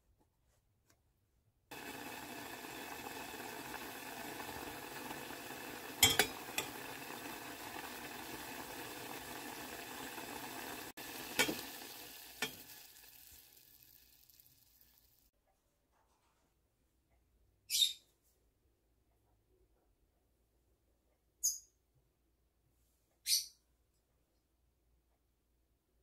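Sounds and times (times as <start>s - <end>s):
wine simmering in pot: 1.7s - 15.3s
metal spoon clinking pot: 6.0s - 6.9s.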